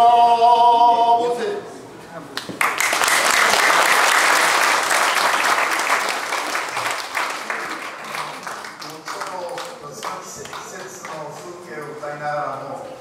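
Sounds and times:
audience applauding: 2.6 - 11.5.

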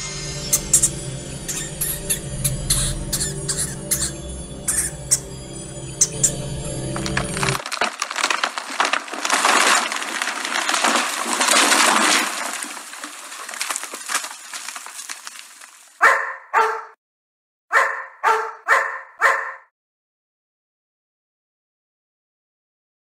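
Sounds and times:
dense crackling noise: 7.0 - 16.0
dog barking: 16.0 - 17.0, 17.7 - 19.7.

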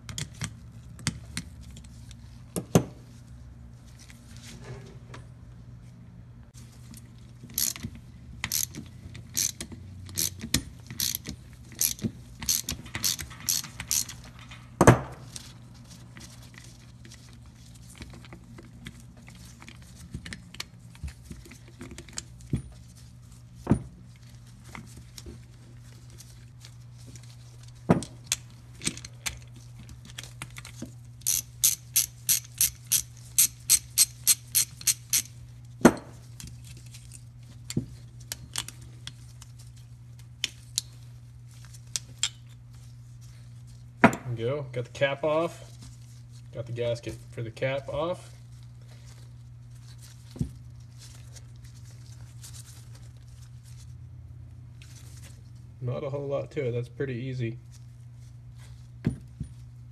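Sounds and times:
ratchet wrench clicking: 7.5 - 14.2, 31.2 - 35.4.

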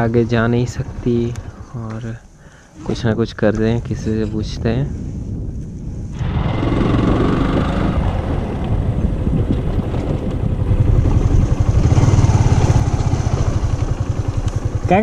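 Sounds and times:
motorcycle engine running: 5.4 - 15.0.

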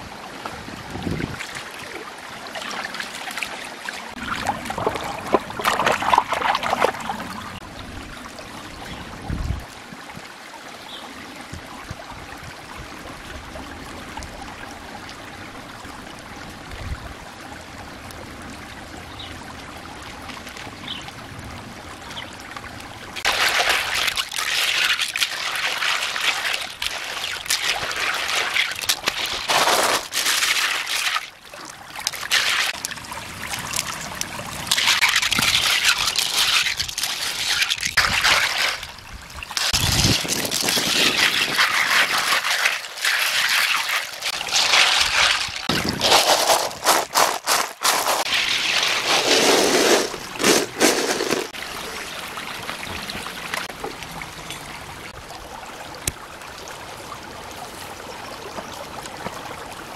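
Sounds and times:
stream water trickling: 0.0 - 59.9
shellfish washed in wicker basket: 23.2 - 31.3, 32.0 - 38.9, 39.5 - 51.6.

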